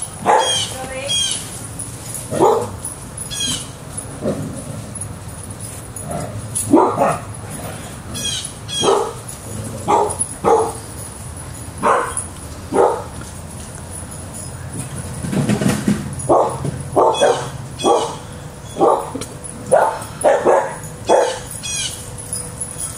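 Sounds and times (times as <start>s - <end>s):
dog barking: 0.2s - 0.7s, 2.3s - 2.8s, 6.7s - 7.3s, 8.7s - 9.2s, 9.9s - 10.8s, 11.8s - 13.1s, 16.3s - 18.2s, 18.8s - 21.5s.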